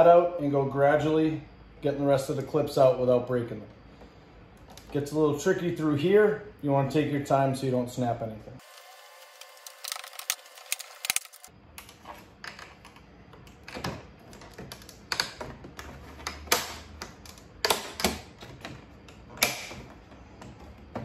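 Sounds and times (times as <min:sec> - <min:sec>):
plastic clips clicking and snapping: 0:16.2 - 0:19.8.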